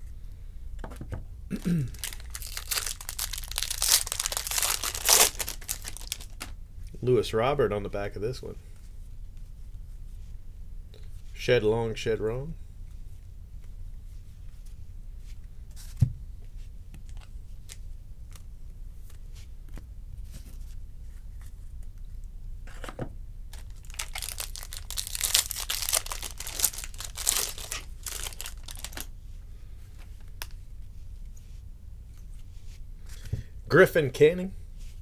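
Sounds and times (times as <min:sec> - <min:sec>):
wrapper tearing and crinkling: 0:01.6 - 0:06.5, 0:23.5 - 0:29.1.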